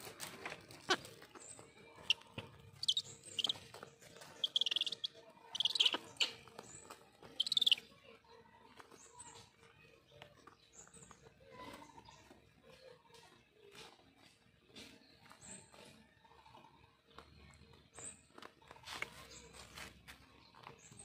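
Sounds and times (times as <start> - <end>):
birds scuffling and clicking: 0.0 - 21.0
shrill squealing bird calls: 2.0 - 3.6, 4.4 - 6.4, 7.4 - 7.8.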